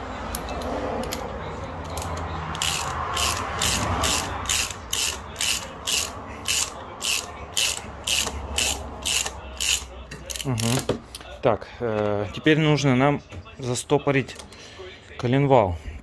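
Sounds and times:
ratchet wrench clicking: 0:00.3 - 0:10.9.

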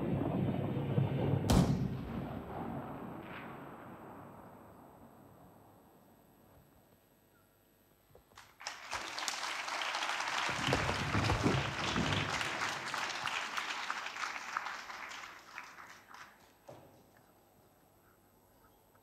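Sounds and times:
audience applauding: 0:08.4 - 0:16.7.

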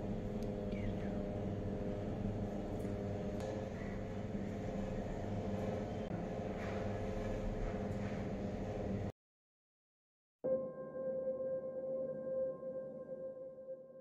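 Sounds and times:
low hum of held tones: 0:00.0 - 0:09.1.

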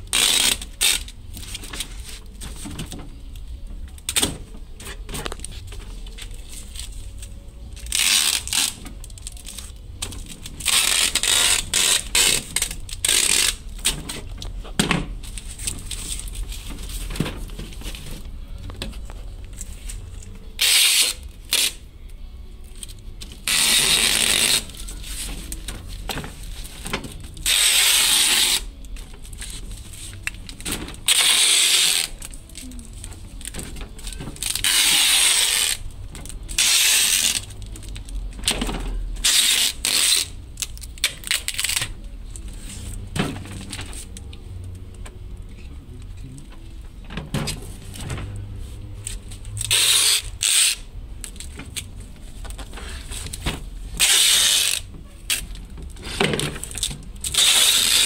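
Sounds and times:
packing tape pulled off roll: 0:00.0 - 0:14.6, 0:19.5 - 0:21.8, 0:22.7 - 0:42.0, 0:49.0 - 0:58.0.

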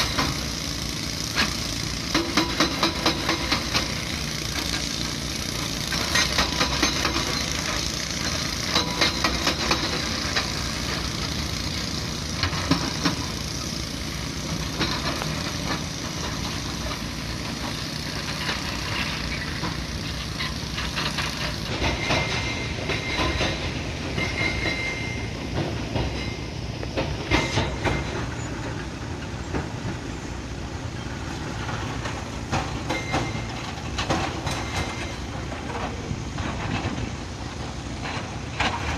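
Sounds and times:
diesel engines running: 0:00.0 - 0:38.9
rock and steel clanking: 0:14.4 - 0:29.9, 0:31.5 - 0:38.9.

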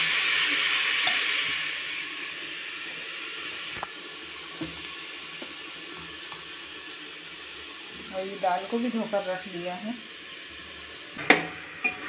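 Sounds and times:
spinach sizzling in oil: 0:00.0 - 0:12.0.

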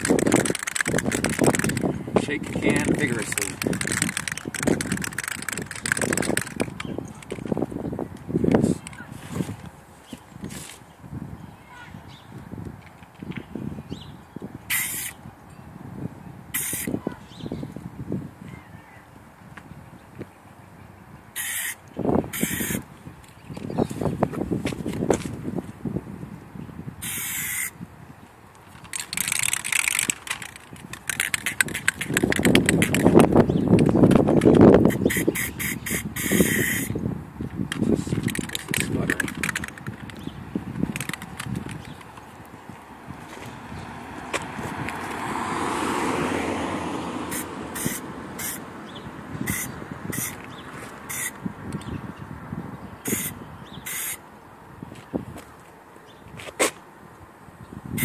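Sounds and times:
fast clicking: 0:00.0 - 0:07.6, 0:28.8 - 0:35.3, 0:37.7 - 0:42.2
aerosol spray hissing: 0:14.7 - 0:15.2, 0:16.6 - 0:16.9, 0:21.4 - 0:21.8, 0:27.0 - 0:27.7, 0:34.9 - 0:36.9, 0:47.3 - 0:48.6, 0:53.9 - 0:54.2.

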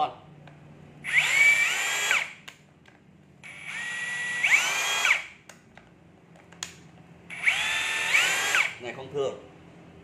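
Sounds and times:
drill motor whining: 0:01.0 - 0:02.4, 0:03.4 - 0:05.4, 0:07.3 - 0:08.8.

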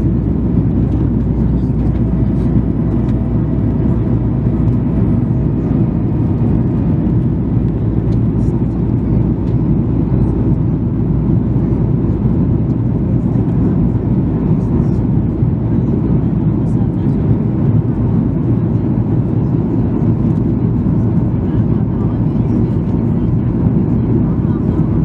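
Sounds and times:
airplane cabin roar: 0:00.0 - 0:25.0.

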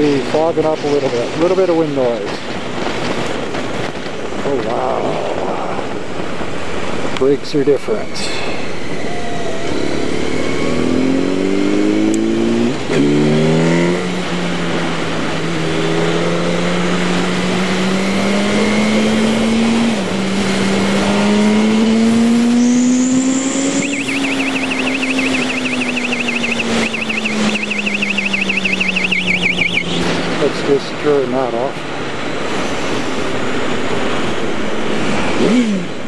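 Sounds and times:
wind noise on microphone: 0:00.0 - 0:10.9
motorcycle engine accelerating: 0:09.6 - 0:30.4
rapid warbling electronic beep: 0:23.3 - 0:30.0.

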